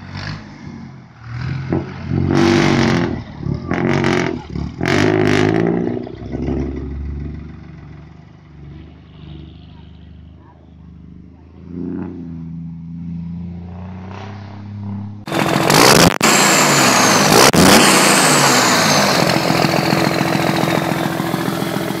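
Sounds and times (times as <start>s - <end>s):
engine revving sound effect: 0.0s - 7.6s, 11.6s - 22.0s
high whine: 13.1s - 22.0s
tractor engine idling: 15.2s - 22.0s.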